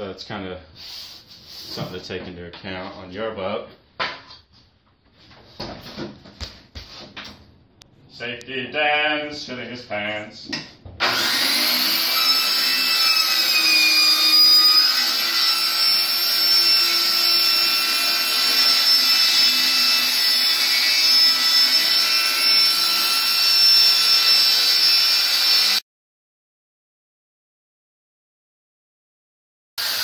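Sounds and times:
circular saw cutting plywood: 11.0 - 25.8, 29.8 - 30.0.

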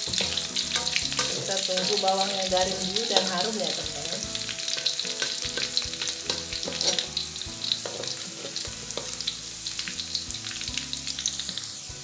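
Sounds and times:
onion sizzling in hot oil: 0.0 - 12.0
metal spatula scraping a wok: 0.1 - 2.1, 4.3 - 10.1.

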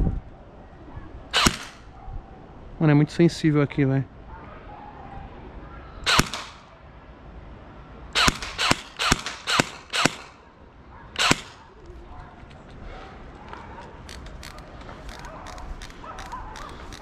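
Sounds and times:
airsoft rifle shots: 1.3 - 1.9, 6.0 - 6.7, 8.2 - 10.4, 11.2 - 11.7.

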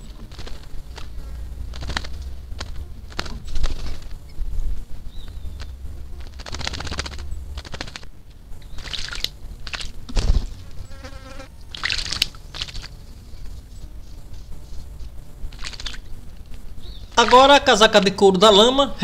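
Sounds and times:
rapid rattle: 0.0 - 10.9
bird splashing in water: 5.6 - 10.8, 11.7 - 13.0, 15.5 - 16.1, 17.1 - 17.7.

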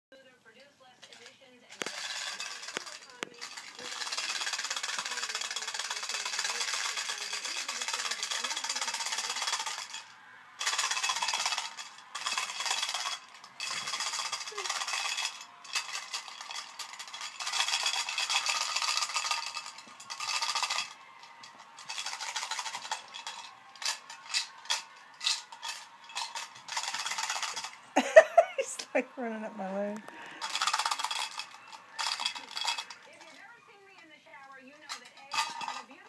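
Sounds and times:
mints rattling in tin: 1.0 - 29.2, 30.0 - 36.0.

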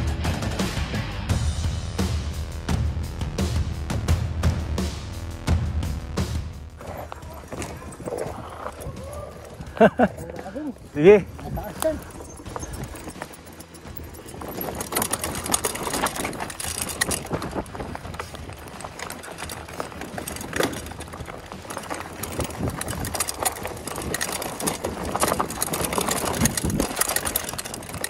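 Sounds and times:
bike rattling: 6.2 - 28.0
tyres crunching over rock: 6.8 - 28.0.

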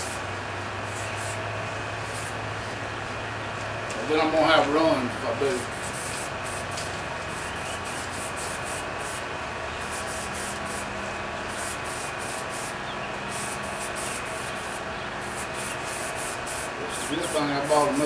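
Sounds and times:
spray paint can hissing: 0.0 - 0.2, 0.8 - 1.4, 2.0 - 2.4, 5.5 - 9.2, 9.8 - 18.0
shop fans whirring: 0.0 - 18.0.

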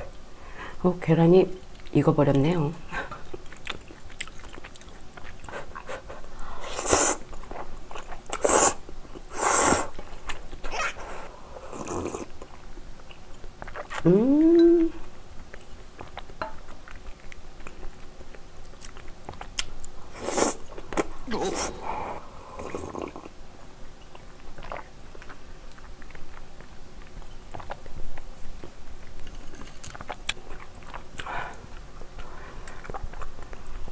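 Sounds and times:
chewing: 3.0 - 6.3, 7.3 - 10.7, 11.7 - 14.2, 14.9 - 20.0, 24.0 - 33.9.

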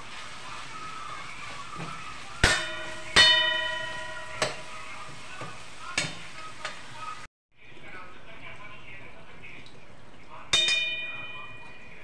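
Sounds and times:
food sizzling: 0.0 - 7.3
pan ringing from strikes: 2.4 - 4.9, 10.5 - 12.0.

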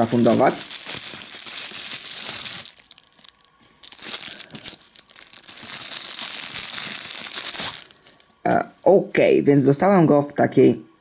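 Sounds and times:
bubble wrap crinkling: 0.0 - 8.4.

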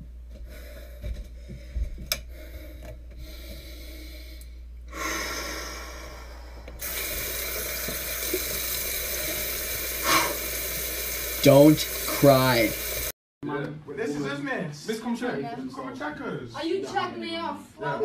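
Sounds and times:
running tap water: 6.8 - 13.2.

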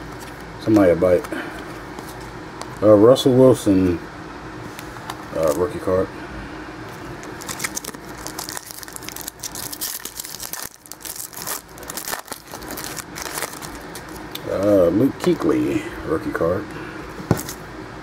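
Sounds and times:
foil wrapper crinkling and tearing: 7.2 - 14.4.

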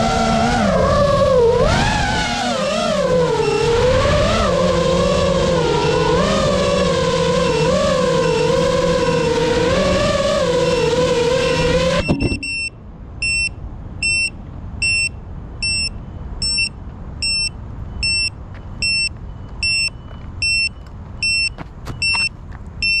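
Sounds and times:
electronic buzzer beeping: 11.5 - 23.0.

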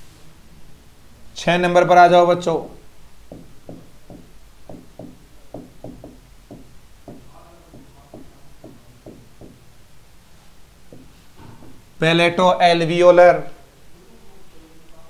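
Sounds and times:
pen tapping on whiteboard: 3.3 - 9.6, 10.9 - 11.2.

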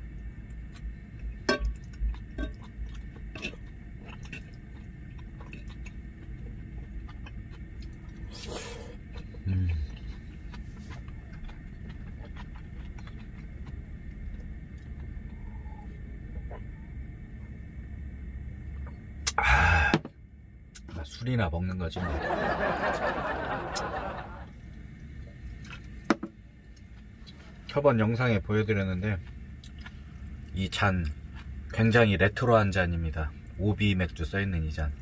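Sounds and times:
steady low hum: 0.0 - 35.0
chewing: 1.7 - 17.0, 25.3 - 26.0, 29.2 - 31.8
man humming mm: 8.3 - 10.1, 19.2 - 20.1.

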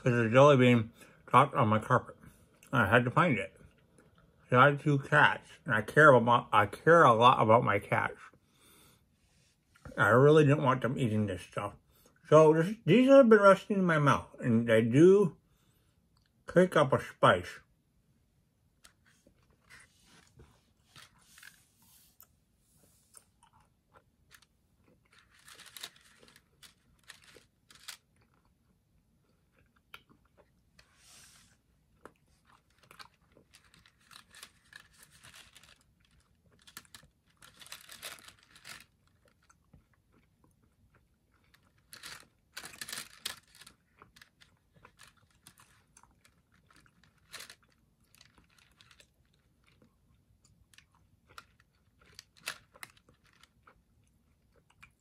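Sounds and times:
person chewing: 39.0 - 41.7.

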